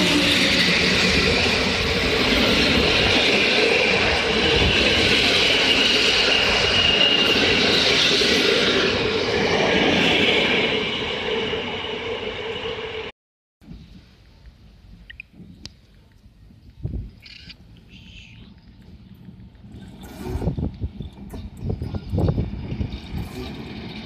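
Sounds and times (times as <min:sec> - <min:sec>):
high wheel squeal: 0:00.0 - 0:13.1
train wheels on rails: 0:00.0 - 0:24.0.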